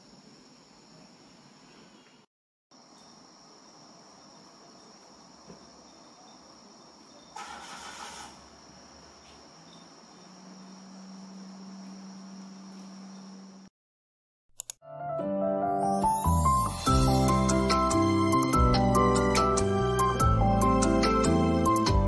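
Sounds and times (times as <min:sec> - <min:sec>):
insect chorus trilling: 0:00.0 - 0:13.7
loud hissing burst: 0:07.4 - 0:08.6.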